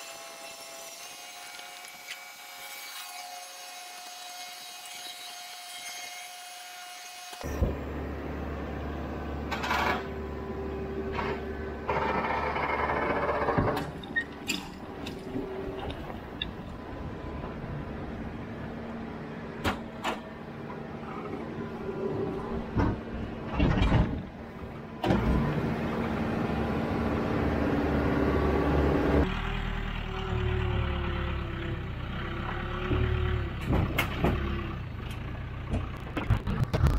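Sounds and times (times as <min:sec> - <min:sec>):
diesel engine running: 0:07.5 - 0:36.8
sharp knocks and clanks: 0:11.1 - 0:16.6.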